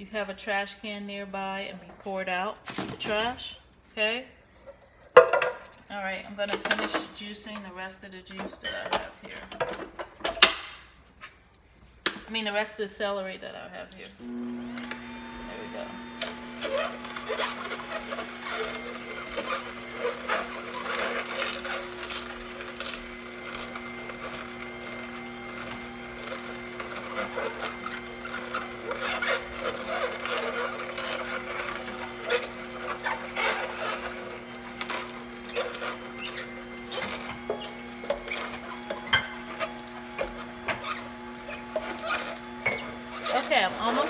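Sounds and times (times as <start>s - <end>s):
juicer motor humming: 14.2s - 44.0s
celery crackling and snapping: 16.2s - 44.0s.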